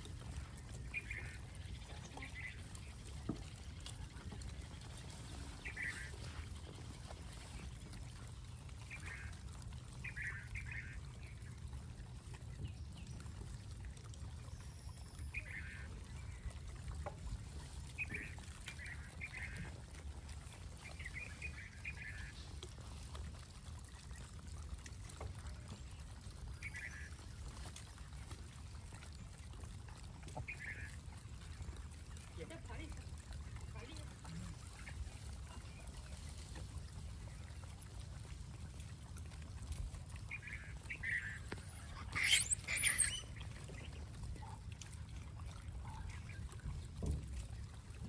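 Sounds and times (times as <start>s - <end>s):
short harsh animal calls: 41.8s - 43.4s.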